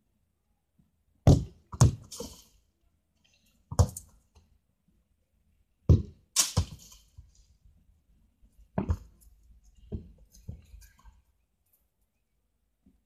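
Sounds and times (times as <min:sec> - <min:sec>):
sharp knocks and thuds: 0:01.2 - 0:02.4, 0:05.8 - 0:07.0, 0:08.7 - 0:09.2.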